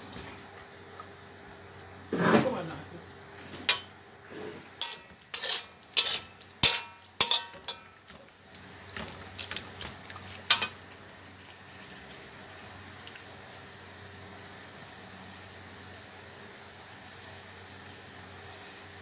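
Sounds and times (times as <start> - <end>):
oil sizzling: 3.4 - 19.0
metal spatula scraping a wok: 3.6 - 8.0.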